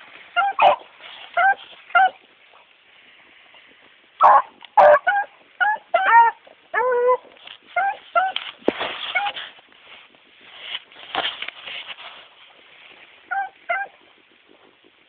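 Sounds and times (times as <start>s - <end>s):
hounds barking and yelping: 0.4s - 2.3s, 4.2s - 8.5s, 13.3s - 14.0s.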